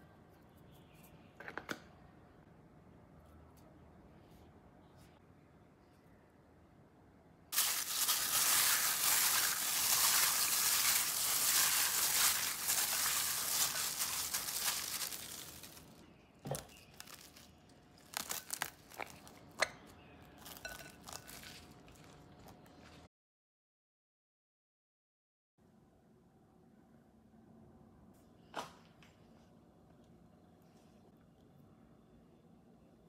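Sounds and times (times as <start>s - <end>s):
cling film crackling: 7.6s - 16.0s
plastic gloves crinkling: 7.6s - 19.6s, 20.4s - 23.0s.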